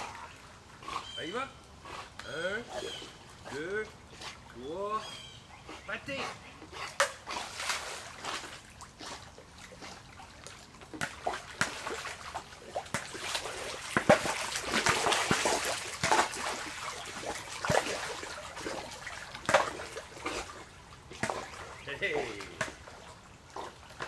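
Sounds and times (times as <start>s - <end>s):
dog splashing in water: 6.8s - 24.0s.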